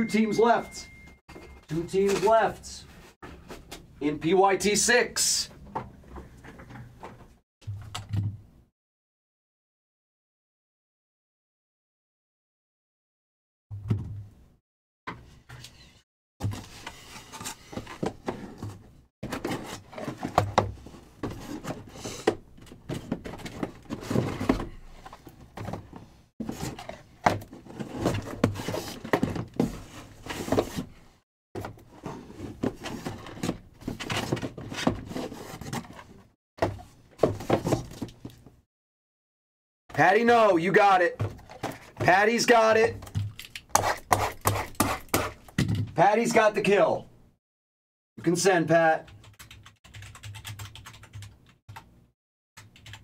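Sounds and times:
boxes knocking on a table: 36.6 - 38.1.

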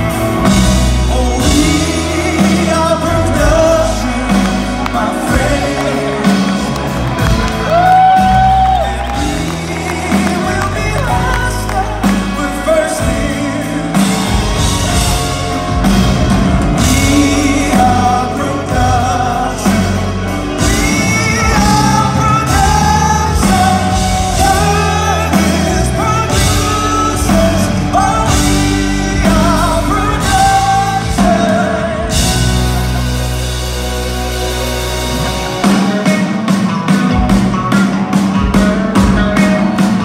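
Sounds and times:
drums: 0.0 - 40.0
lead singer: 0.0 - 40.0
live band playing through pa: 0.0 - 40.0.

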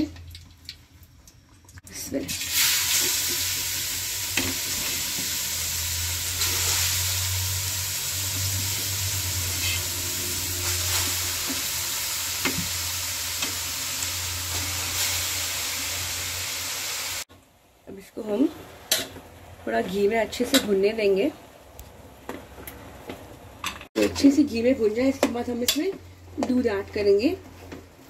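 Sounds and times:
vegetable sizzling in hot oil: 2.3 - 17.3.

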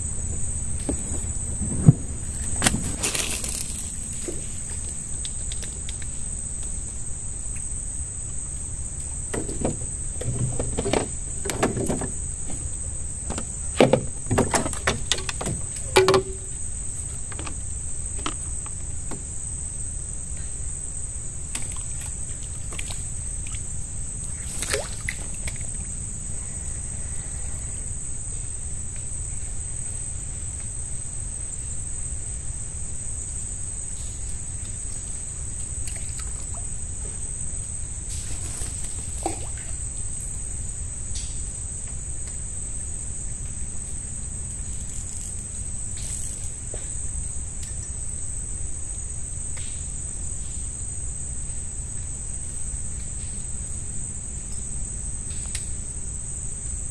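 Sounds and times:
night insects droning: 0.0 - 56.9
fishing gear knocking on boat: 9.3 - 16.6.

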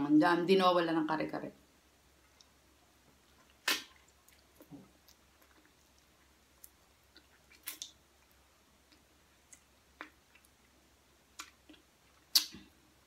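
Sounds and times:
chewing mouth sounds: 3.4 - 8.0
loud mouth click: 3.6 - 3.9, 12.3 - 12.6.

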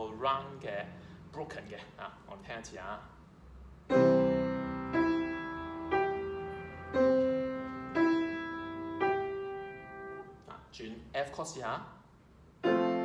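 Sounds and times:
piano broken chord notes: 3.9 - 10.4, 12.6 - 13.0
piano chord: 3.9 - 10.4, 12.6 - 13.0.

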